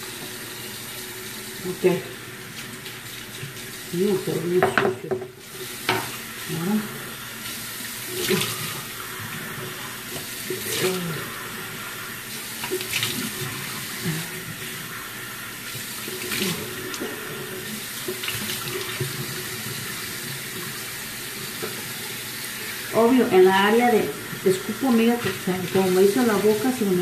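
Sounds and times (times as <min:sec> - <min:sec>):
tap running into sink: 0:04.6 - 0:06.2.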